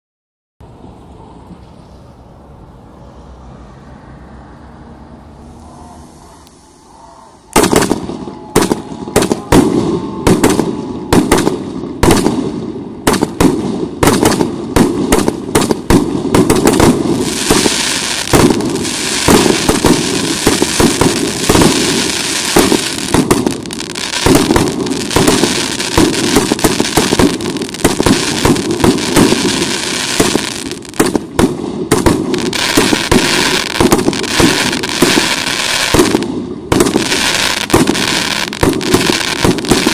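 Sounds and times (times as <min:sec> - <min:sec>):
firework crackle: 0:05.6 - 0:39.9
firework shots and bursts: 0:07.5 - 0:39.9.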